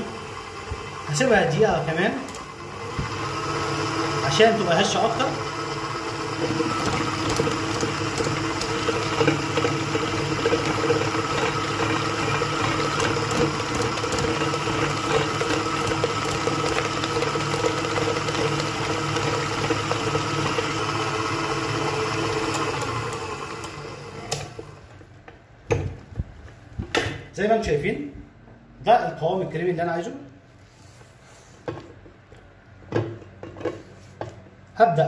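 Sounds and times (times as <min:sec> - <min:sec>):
electric stand mixer running: 0:00.0 - 0:25.0.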